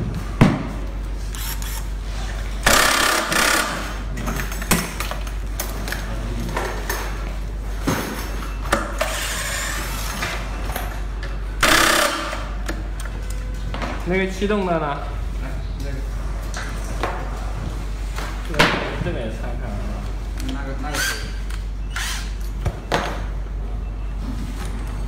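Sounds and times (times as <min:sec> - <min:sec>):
power screwdriver running: 0:01.4 - 0:01.8, 0:02.7 - 0:03.8, 0:11.6 - 0:12.4.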